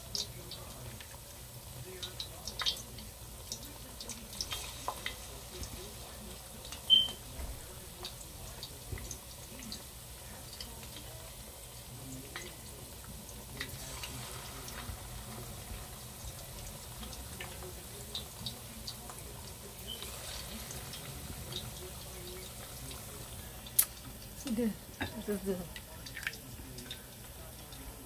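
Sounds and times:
chicken frying in hot oil: 0:00.0 - 0:28.0.

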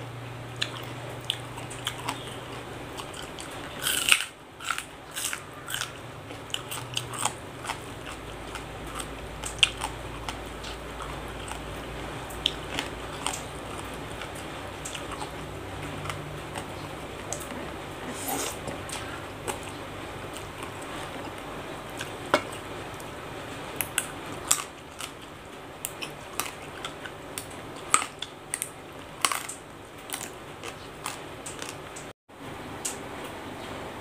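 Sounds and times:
chewing: 0:00.5 - 0:32.1
slurping noodles: 0:17.5 - 0:19.3.

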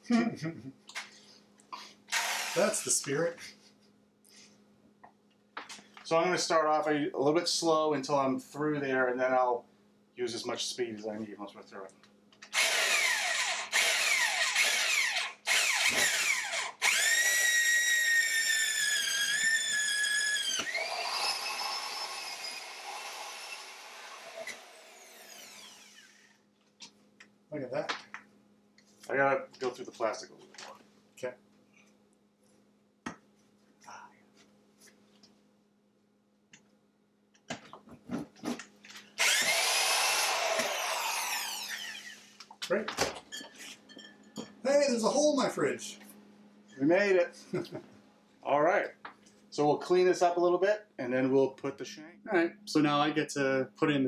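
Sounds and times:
power drill cutting sheet metal: 0:02.1 - 0:03.0, 0:12.5 - 0:26.3, 0:39.2 - 0:42.4.

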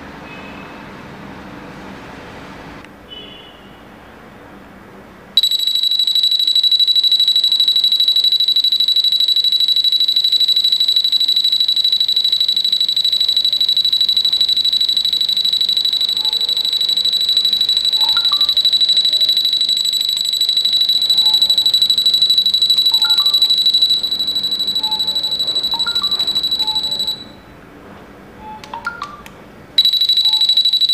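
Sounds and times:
shrill alarm tone: 0:05.4 - 0:27.4, 0:29.8 - 0:30.9.

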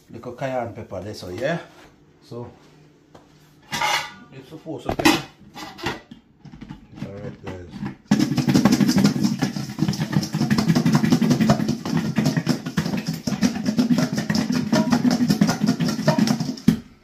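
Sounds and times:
fish rattling in metal bowl: 0:08.1 - 0:16.7.

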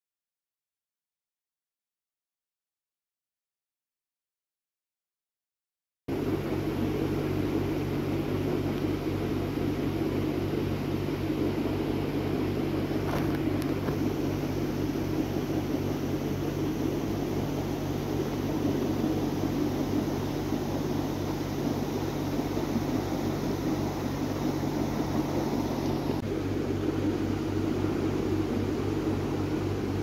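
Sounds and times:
low machine hum: 0:06.1 - 0:30.0.

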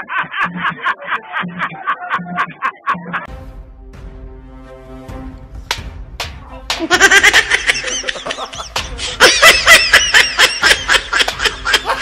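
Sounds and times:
high-pitched laughter: 0:00.0 - 0:03.3, 0:06.8 - 0:12.0.

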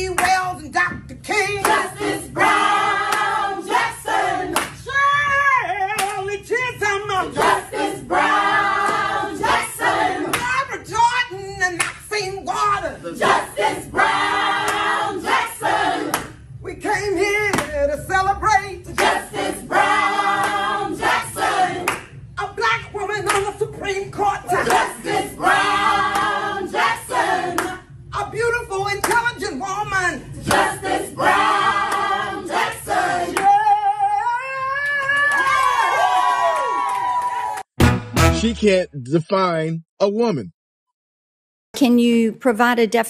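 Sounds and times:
hand claps: 0:00.1 - 0:00.4, 0:01.6 - 0:01.9, 0:03.1 - 0:03.3, 0:04.5 - 0:04.8, 0:05.9 - 0:06.3, 0:11.8 - 0:12.0, 0:14.6 - 0:14.9, 0:16.1 - 0:16.4, 0:17.5 - 0:17.8, 0:19.0 - 0:19.2, 0:21.8 - 0:22.1, 0:23.2 - 0:23.5, 0:24.6 - 0:24.9, 0:26.1 - 0:26.4, 0:27.6 - 0:27.8, 0:29.0 - 0:29.3, 0:33.3 - 0:33.6
group singing a chant: 0:01.3 - 0:04.8, 0:06.8 - 0:10.5, 0:12.5 - 0:34.2.

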